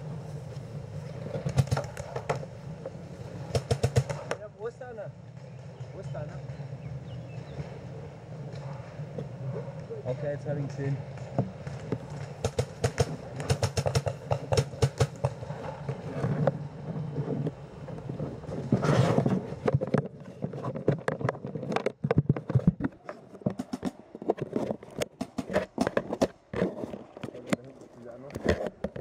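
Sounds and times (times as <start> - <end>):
paintball markers firing: 1.4 - 2.4, 3.5 - 4.4, 11.5 - 15.5.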